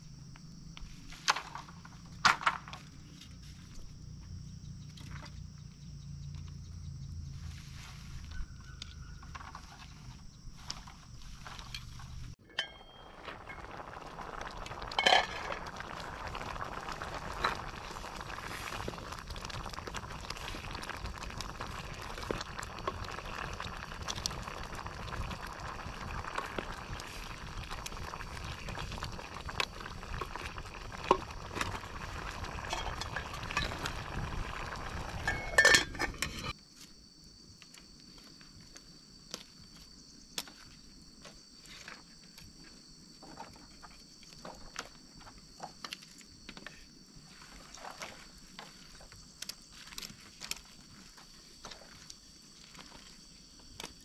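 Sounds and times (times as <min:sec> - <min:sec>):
pot boiling and bubbling: 0:06.0 - 0:36.6, 0:40.1 - 0:54.0
campfire crackling: 0:08.3 - 0:36.6, 0:47.0 - 0:54.0.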